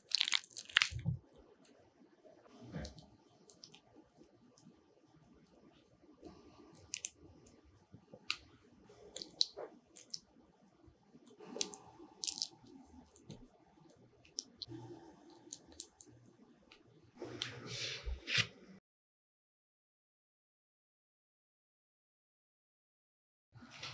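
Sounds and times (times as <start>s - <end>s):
wet squishes of filling: 0.0s - 1.3s, 6.3s - 7.2s, 8.2s - 10.5s, 11.3s - 14.7s.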